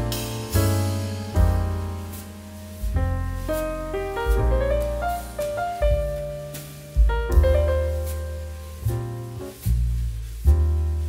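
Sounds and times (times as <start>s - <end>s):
bass line: 0.0s - 11.0s.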